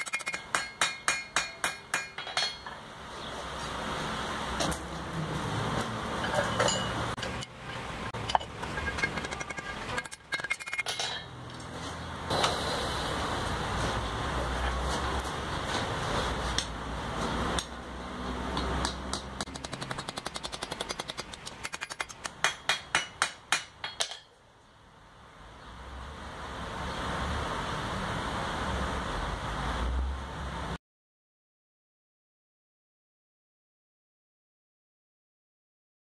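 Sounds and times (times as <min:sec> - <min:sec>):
hammer striking iron on anvil: 0:00.0 - 0:02.8, 0:06.4 - 0:07.5, 0:21.7 - 0:24.3
steady background hum and hiss: 0:00.0 - 0:30.8.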